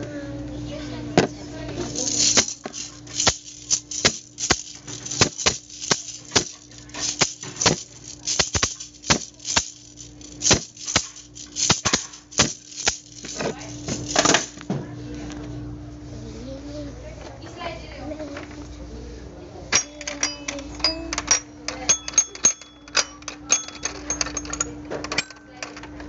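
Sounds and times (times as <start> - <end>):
steady hum: 0.0 - 14.7
toy drum and maraca: 1.8 - 14.6.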